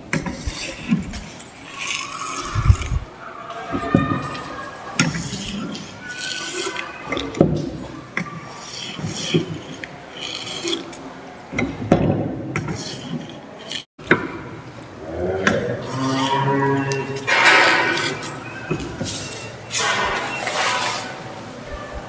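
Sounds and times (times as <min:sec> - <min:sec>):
paper cutter clanking and scraping: 0:17.2 - 0:21.2.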